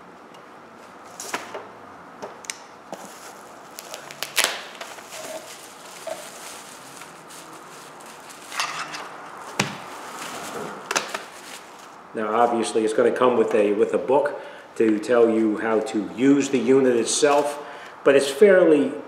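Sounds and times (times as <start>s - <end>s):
plastic wrapping crinkling: 2.9s - 12.7s.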